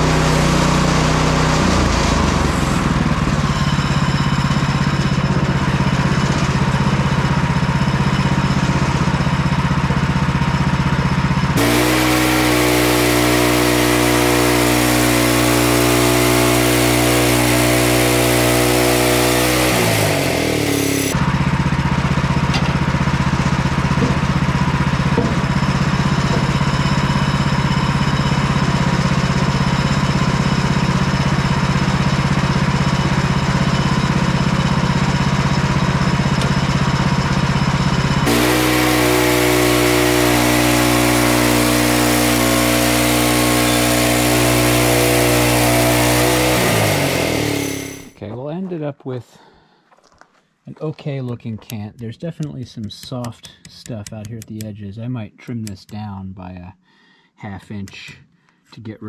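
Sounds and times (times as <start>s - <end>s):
sawmill engine running: 0.0s - 48.4s
hiss of band saw blade: 11.6s - 21.2s, 38.3s - 48.1s.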